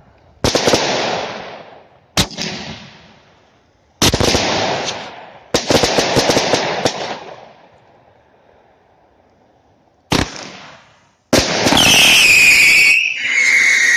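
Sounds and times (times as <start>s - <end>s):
firework burst with pops: 0.4s - 7.7s, 10.1s - 13.9s
firework bang: 10.1s - 12.6s.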